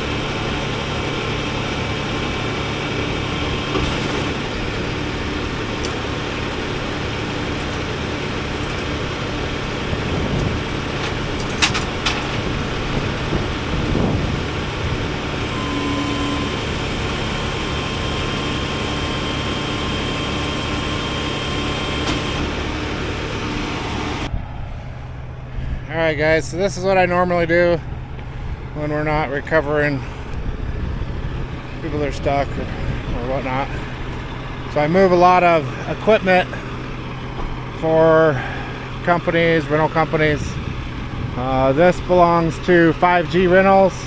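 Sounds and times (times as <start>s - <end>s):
diesel truck engine idling: 0.0s - 44.0s
faint steady whine: 15.3s - 40.4s.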